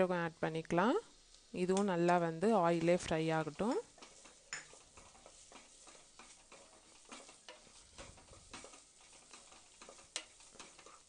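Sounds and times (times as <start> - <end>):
food sizzling in oil: 0.0 - 11.0
spatula scraping a pot: 2.7 - 11.0.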